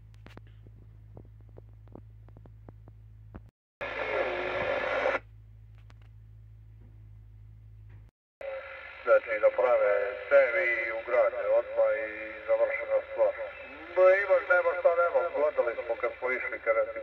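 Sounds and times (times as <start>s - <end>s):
radio speaker hum: 0.0s - 5.3s, 8.4s - 17.0s
radio transmission burst: 3.8s - 5.2s, 8.4s - 17.0s.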